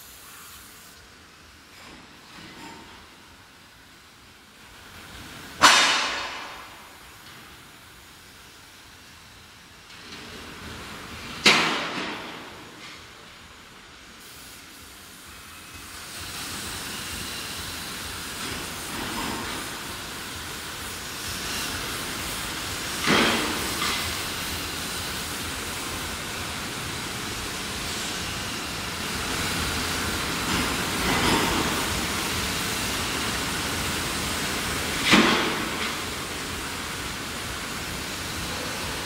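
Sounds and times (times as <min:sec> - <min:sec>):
steady workshop hiss: 0:00.0 - 0:39.0.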